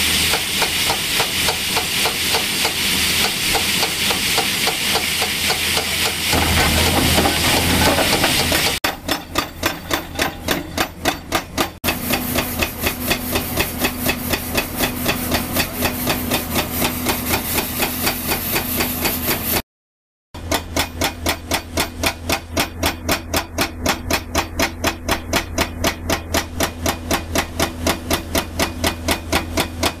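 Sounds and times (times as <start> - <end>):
excavator engine running: 4.8 - 19.3
rapid even pounding: 6.3 - 8.8.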